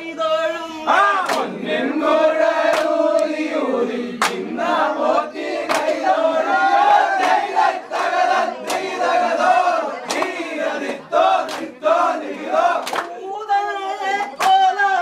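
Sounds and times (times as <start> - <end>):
men crying out and chanting: 0.0 - 2.6.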